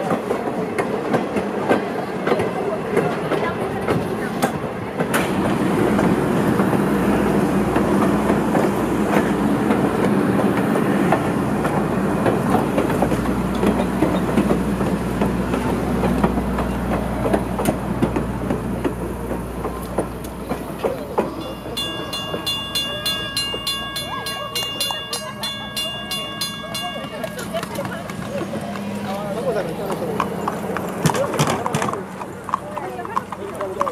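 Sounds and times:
train rumble: 0.0 - 33.9
train wheels clicking over rail joints: 0.0 - 33.9
steady high tones: 21.3 - 28.4.

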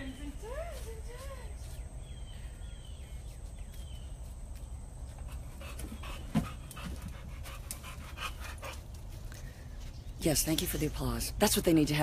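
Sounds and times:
dog panting: 5.1 - 9.3.

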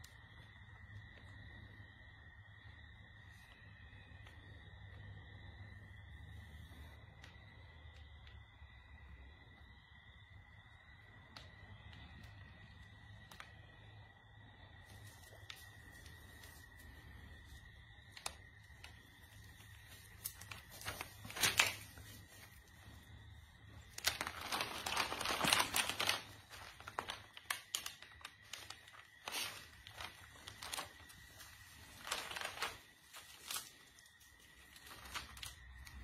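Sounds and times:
crinkling and rustling: 14.7 - 36.0.

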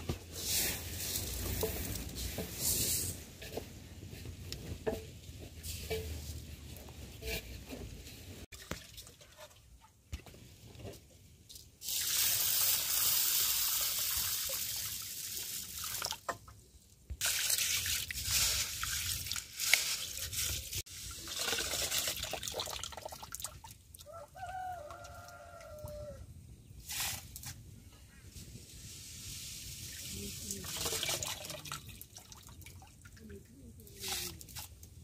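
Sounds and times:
beans swished and rinsed by hand: 0.2 - 9.5, 17.2 - 22.6, 28.3 - 31.6, 33.9 - 34.8
water poured into metal bowl: 17.2 - 23.7.

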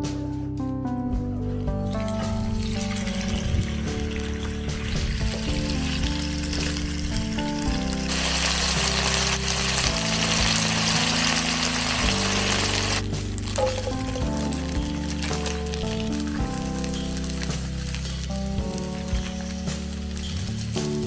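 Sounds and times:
background music with sustained tones: 0.0 - 21.0
chicken sizzling in hot oil: 1.8 - 21.0.

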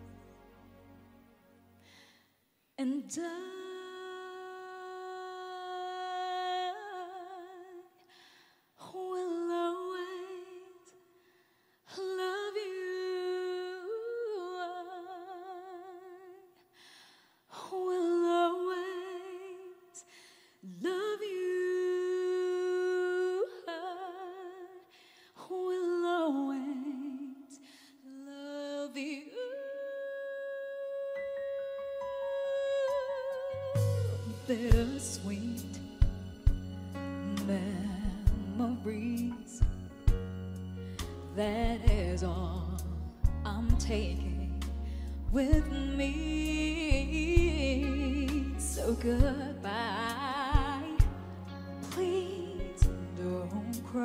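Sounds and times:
breaths: 1.8 - 2.6, 8.0 - 8.8, 11.1 - 11.9, 16.6 - 17.5, 20.0 - 20.6, 24.8 - 25.4, 27.6 - 28.0, 40.8 - 41.2, 44.7 - 45.3.

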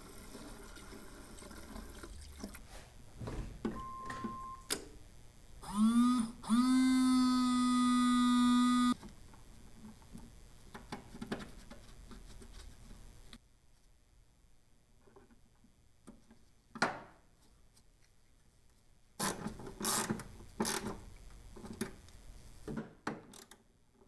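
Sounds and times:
short beep: 3.8 - 4.7
small electric pump motor whine: 5.6 - 9.0.

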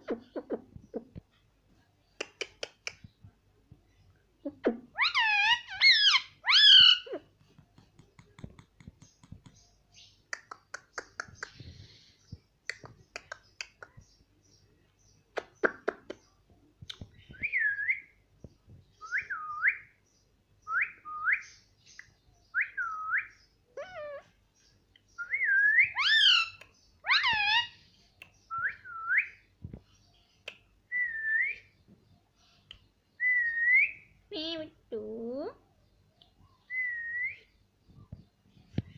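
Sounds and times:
parakeet clicks: 2.2 - 3.1
parakeet whistling calls: 25.3 - 27.7.

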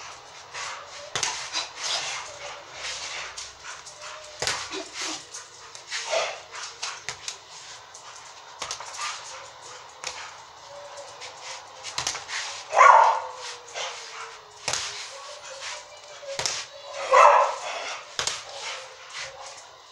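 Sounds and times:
gloves hitting punching ball: 16.4 - 16.6.

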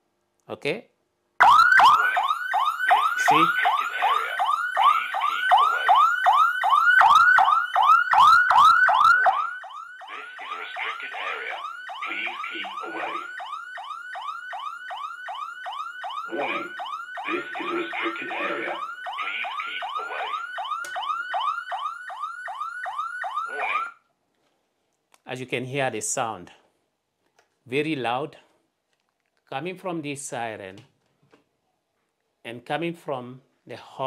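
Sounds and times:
electronic alarm siren wailing: 1.4 - 24.0.

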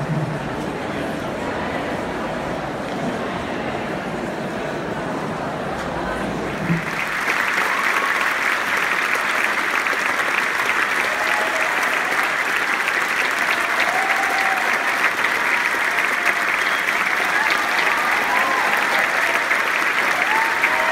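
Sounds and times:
audience applauding: 6.4 - 20.9.

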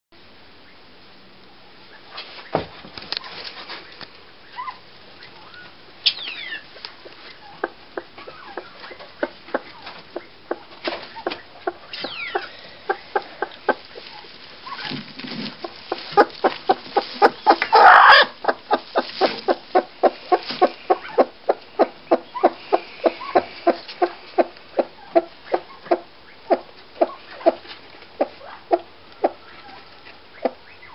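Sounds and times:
hen clucking: 3.2 - 30.9
loud hen squawk burst: 16.1 - 24.5.

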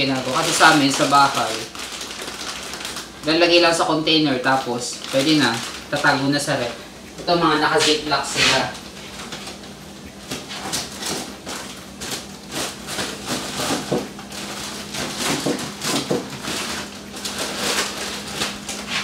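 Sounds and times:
kitchen items clattering: 0.0 - 3.8, 10.3 - 19.0
plastic bags rustling: 0.0 - 19.0
steady low hum: 0.0 - 19.0.

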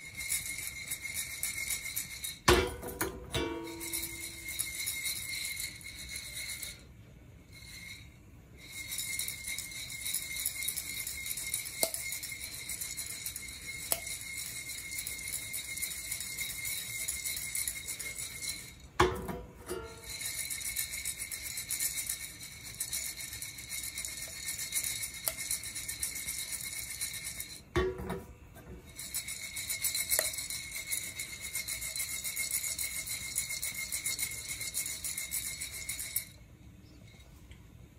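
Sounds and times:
coffee beans rattling in roaster: 0.0 - 36.4.

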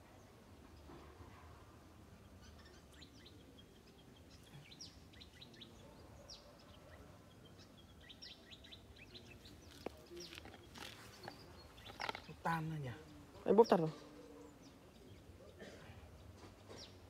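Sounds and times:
small birds chirping: 0.0 - 17.0.

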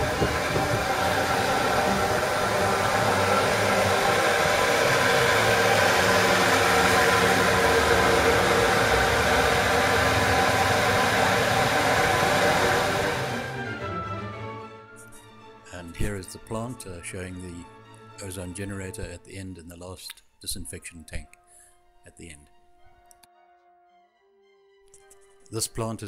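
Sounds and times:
electric pumps humming: 0.0 - 13.8.

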